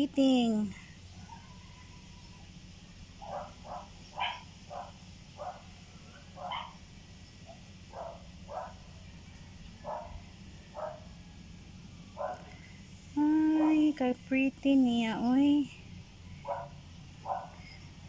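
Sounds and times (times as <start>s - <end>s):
faint dog barking: 1.1s - 2.3s, 3.2s - 9.0s, 9.8s - 11.1s, 12.2s - 12.6s, 13.5s - 14.0s, 16.4s - 17.8s.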